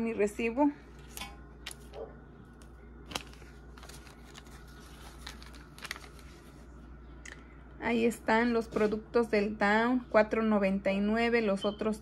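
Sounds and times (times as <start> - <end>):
low room hum: 0.0 - 12.0
light clicks of handling paper: 1.1 - 6.6
paper receipt rustling: 1.1 - 6.8.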